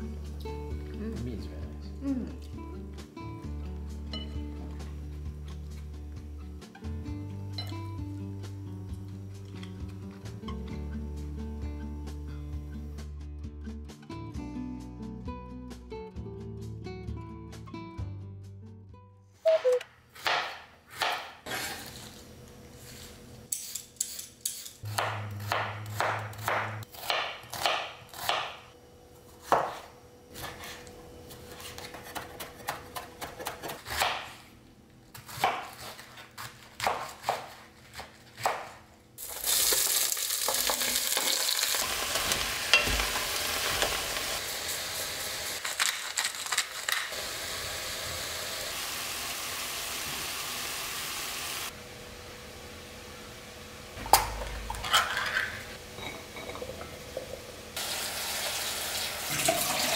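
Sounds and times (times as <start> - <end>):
knife chopping on wooden board: 20.2 - 21.7, 24.9 - 28.6, 29.4 - 30.8, 31.6 - 34.4, 35.1 - 38.8
vegetables sizzling in pot: 39.2 - 59.9.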